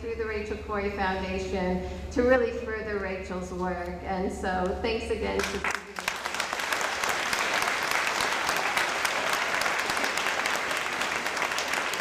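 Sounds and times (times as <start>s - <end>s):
audience applauding: 5.4s - 12.0s.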